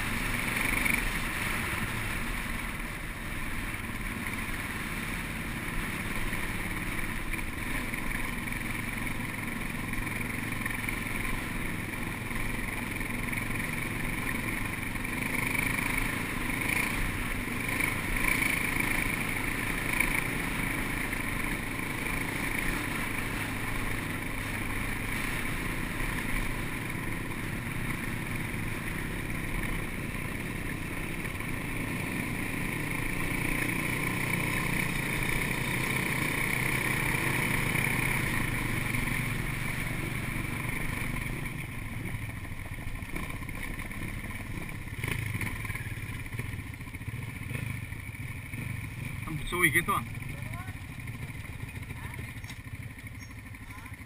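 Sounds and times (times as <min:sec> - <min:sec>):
off-road motorcycle engine: 0:00.0 - 0:54.0.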